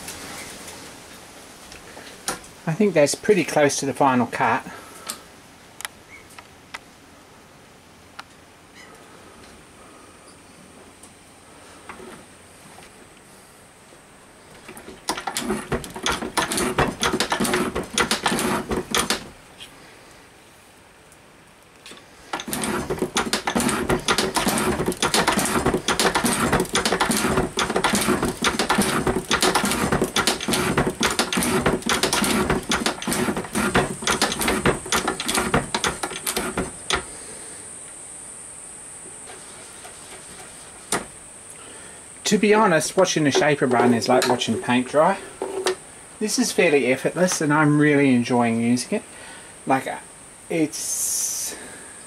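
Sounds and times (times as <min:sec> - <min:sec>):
shaper tool scraping steel: 0:15.1 - 0:19.3, 0:22.3 - 0:37.1.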